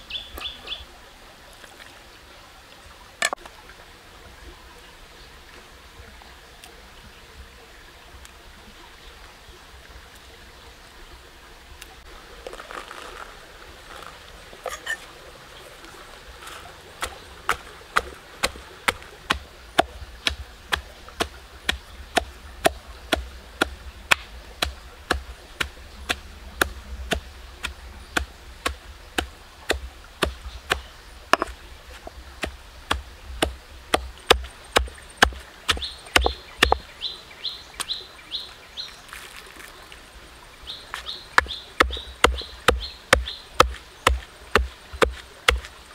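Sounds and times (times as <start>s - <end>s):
soft handling noises: 12.1s - 20.0s, 38.9s - 41.2s
pestle pounding in stone mortar: 17.0s - 36.8s, 41.4s - 45.7s.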